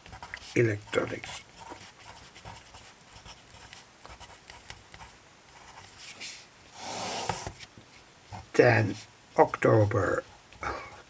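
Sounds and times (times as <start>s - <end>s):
pencil scratching on paper: 0.0s - 7.7s.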